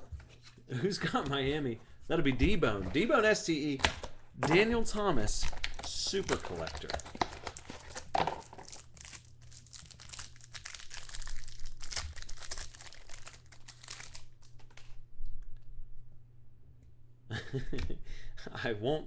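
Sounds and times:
plastic wrapper crinkling: 5.3s - 15.0s.

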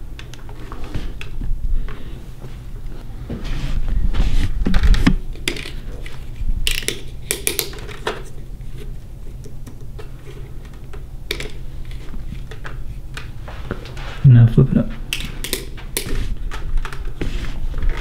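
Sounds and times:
plastic headset clicking and rattling: 4.7s - 8.4s, 9.3s - 13.3s, 15.1s - 17.2s.

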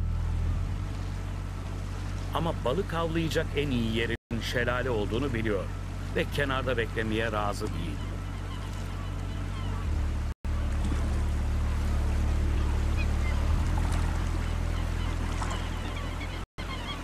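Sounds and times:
low steady drone: 0.0s - 17.0s
faint high bird calls: 7.7s - 10.0s, 14.4s - 17.0s.

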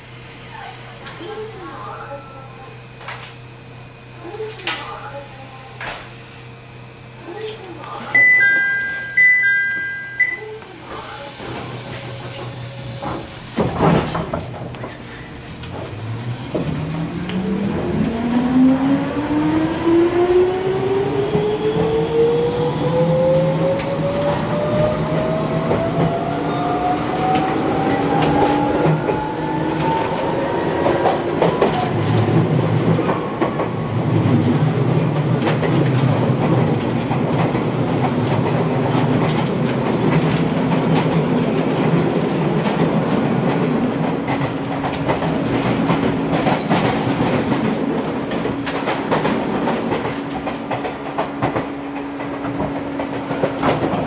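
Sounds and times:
traction motors whining: 7.3s - 33.5s
wheels clacking over rail joints: 30.8s - 54.0s.

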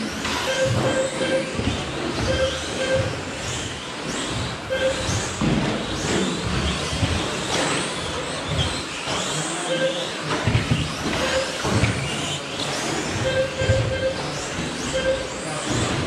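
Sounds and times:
rc truck motors whining: 0.0s - 16.0s
short beeps: 0.4s - 1.6s, 2.2s - 3.2s, 4.7s - 5.2s, 9.7s - 10.1s, 11.2s - 11.6s, 13.2s - 15.5s.

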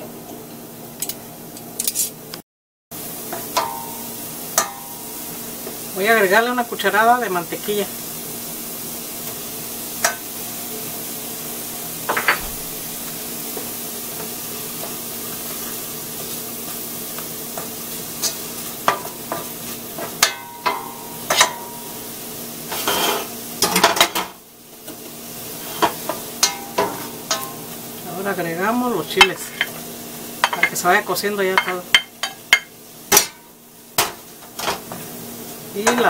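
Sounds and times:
onion and garlic sizzling in butter: 2.9s - 36.0s
spoon scraping a pan: 14.2s - 21.6s, 22.7s - 24.2s, 25.6s - 27.6s.

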